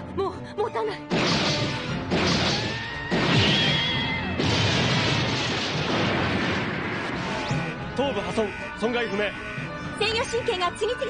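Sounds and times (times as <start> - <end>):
dramatic music: 0.0 - 11.0.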